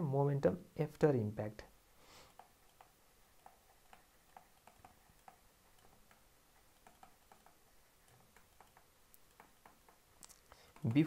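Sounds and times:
stylus tapping on tablet screen: 2.3 - 11.0.

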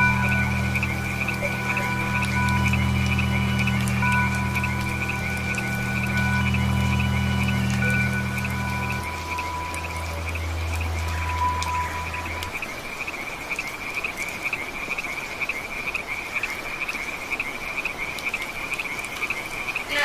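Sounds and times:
low held music note: 0.0 - 12.7
frogs calling in chorus: 0.0 - 20.0
rain on leaves: 0.0 - 20.0.

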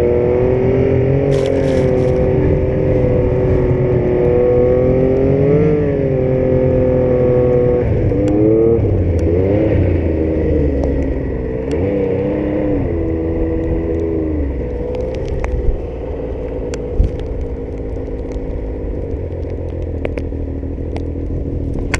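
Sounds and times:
snowmobile engine running: 0.0 - 10.5.

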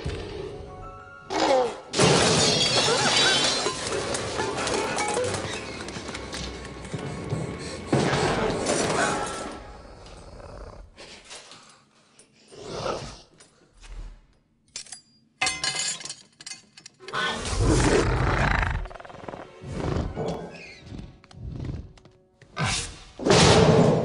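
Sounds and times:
metal ladle clattering on tiles: 14.8 - 16.9
film score music: 17.2 - 24.0.

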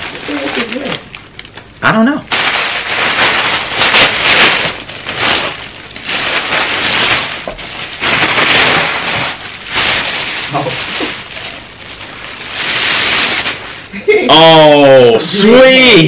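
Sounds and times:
wrapping paper tearing: 0.0 - 1.6, 2.3 - 14.0.

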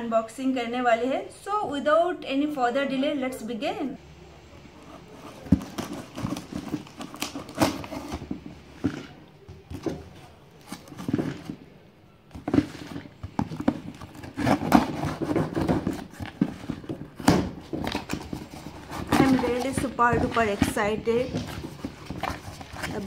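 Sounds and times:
cardboard box rustling and knocking: 5.0 - 11.7, 12.3 - 23.0.

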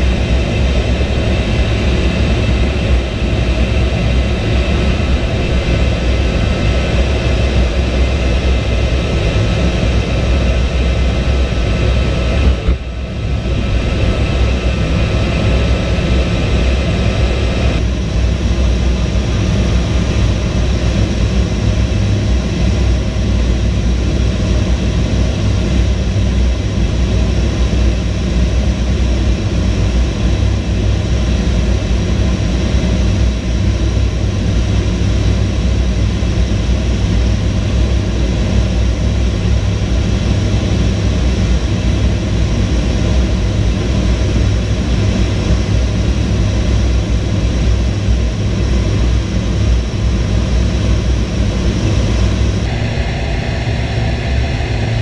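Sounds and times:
rush of airflow: 0.0 - 23.4, 44.8 - 55.0
jet engines rumbling: 0.0 - 55.0.

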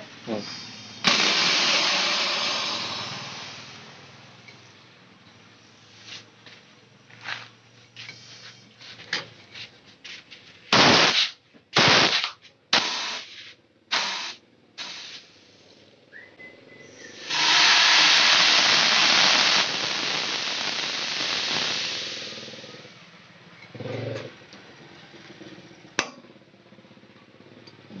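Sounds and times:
compressed air hissing through tubing: 0.3 - 3.9, 10.7 - 15.7, 16.8 - 22.9.

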